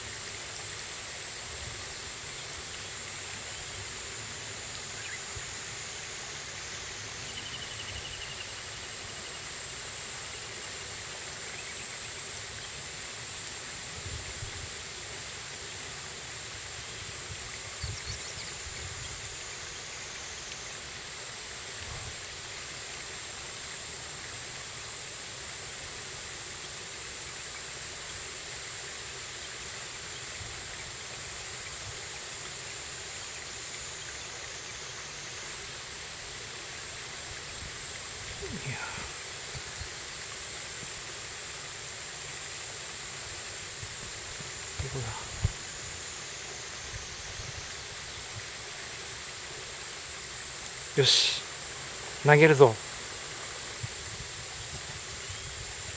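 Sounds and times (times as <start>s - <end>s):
river current rushing: 35.6s - 55.8s.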